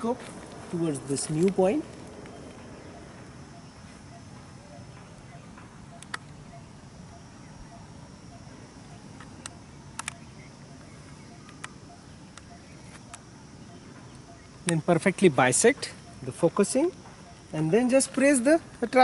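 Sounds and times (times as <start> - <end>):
faint steady hiss: 0.0 - 19.0
thin high steady tone: 0.0 - 19.0
short sharp clicks: 6.0 - 6.4, 9.4 - 10.2.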